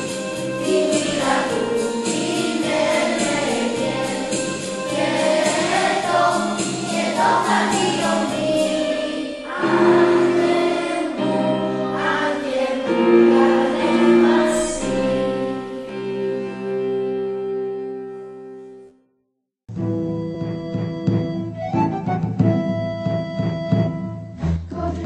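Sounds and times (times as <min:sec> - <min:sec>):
light percussion beat: 0:00.0 - 0:09.0
choir singing a carol: 0:00.0 - 0:18.0.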